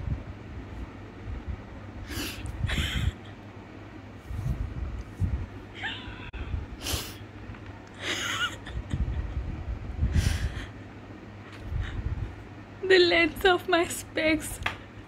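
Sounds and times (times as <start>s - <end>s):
woman laughing hard: 2.5s - 3.4s, 8.0s - 9.6s.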